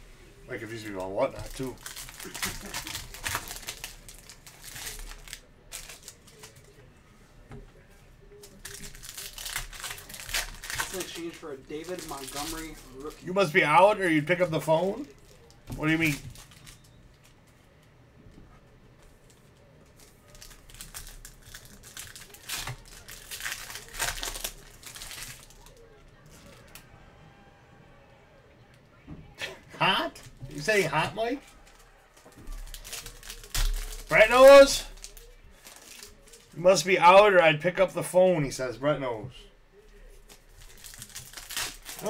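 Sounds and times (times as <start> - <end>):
foil card packs rustling: 0.6 - 6.8, 8.4 - 17.4, 19.2 - 26.8, 30.0 - 37.3, 40.2 - 42.0.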